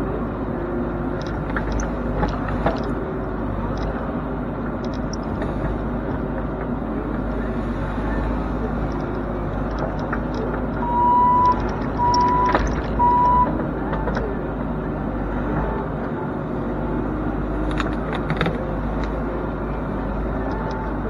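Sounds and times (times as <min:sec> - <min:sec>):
diesel engine running: 0:00.0 - 0:21.0
loud beeps: 0:10.8 - 0:13.5.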